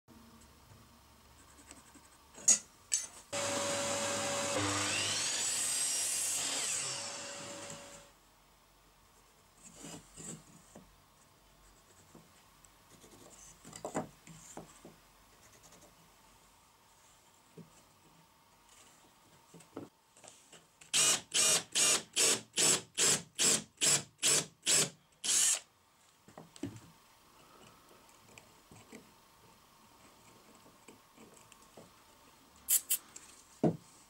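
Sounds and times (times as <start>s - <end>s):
power saw cutting wood: 3.4s - 8.1s.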